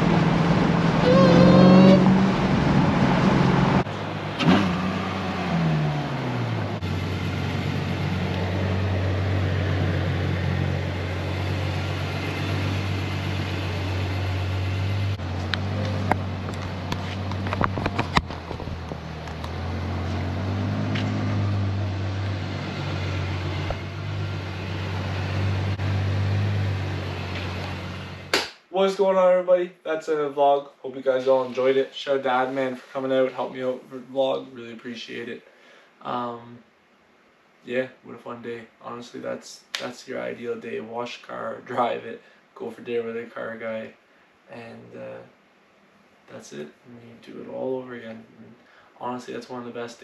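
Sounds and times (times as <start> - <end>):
car driving at speed from inside: 0.0 - 28.3
car engine revving and idling: 0.0 - 28.3.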